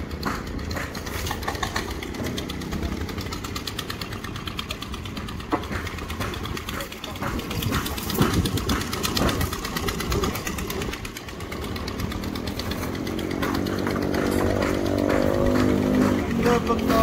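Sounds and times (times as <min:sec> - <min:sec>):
engine running with fast pulse: 0:00.0 - 0:17.0.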